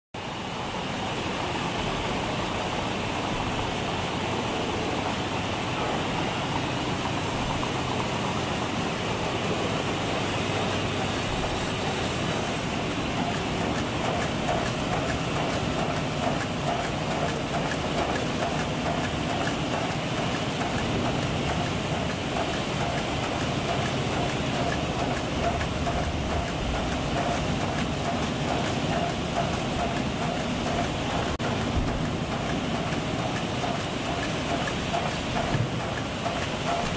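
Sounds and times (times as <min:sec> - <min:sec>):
machine noise with high hiss: 0:00.2 - 0:36.9
fast small ticks and clatter: 0:12.8 - 0:36.9
plastic bottles rattling on conveyor: 0:12.8 - 0:36.9.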